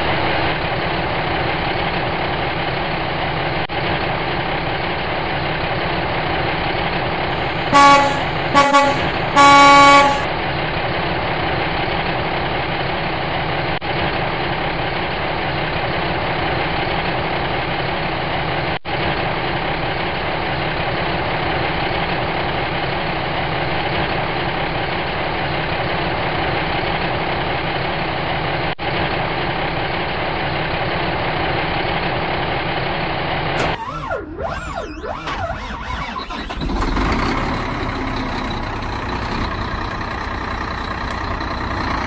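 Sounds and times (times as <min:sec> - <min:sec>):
truck engine idling: 0:07.3 - 0:10.3, 0:35.2 - 0:42.0.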